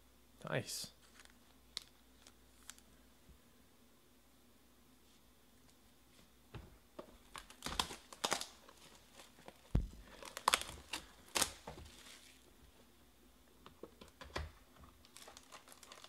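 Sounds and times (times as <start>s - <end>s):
plastic shrink-wrap tearing: 1.0s - 2.8s, 7.2s - 12.4s, 15.0s - 16.0s.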